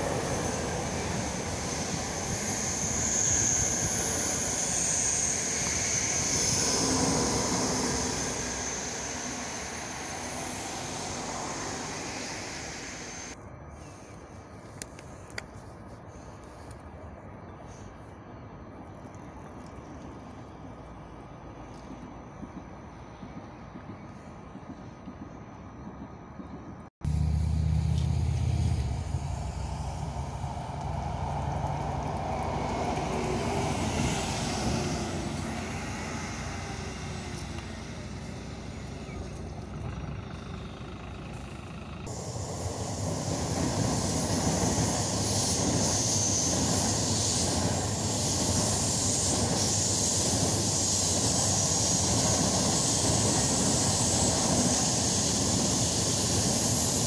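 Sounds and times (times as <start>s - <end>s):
bus engine humming: 0.0s - 13.4s, 26.8s - 57.0s
train wheels hissing on rail: 0.0s - 18.3s, 27.8s - 57.0s.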